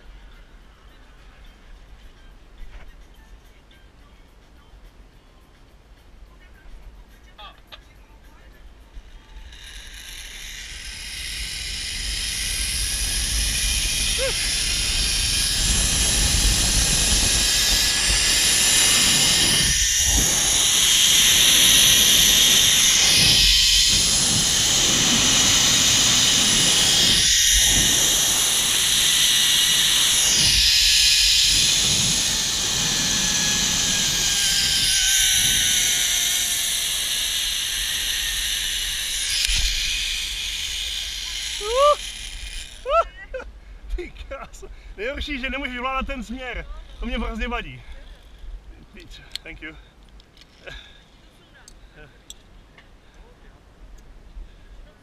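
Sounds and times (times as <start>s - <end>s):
faint whine dropping in pitch: 7.8s - 43.0s
wind rumbling on microphone: 8.6s - 49.6s
pulley hissing on cable: 8.8s - 43.1s.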